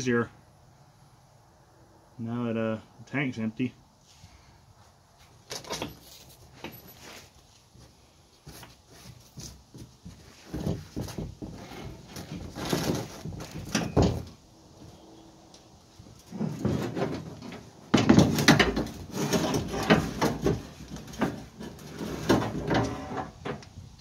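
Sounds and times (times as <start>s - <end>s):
fuel tank scraping and knocking: 9.3s - 14.4s, 16.1s - 23.8s.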